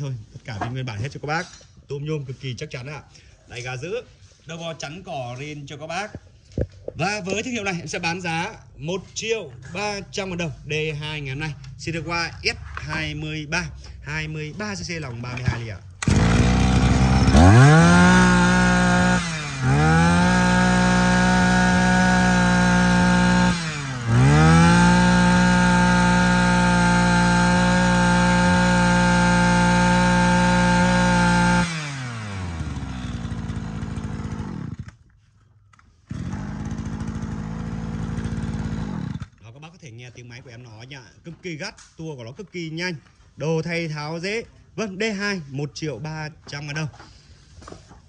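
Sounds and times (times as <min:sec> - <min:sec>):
brush cutter engine revving: 0:15.4 - 0:35.0, 0:36.0 - 0:39.4.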